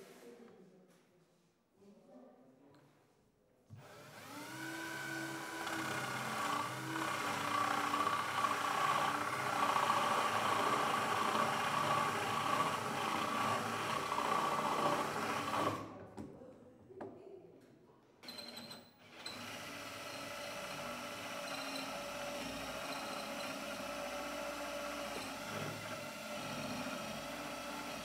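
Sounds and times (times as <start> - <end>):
power drill boring into wood: 3.8 - 15.9, 18.2 - 28.0.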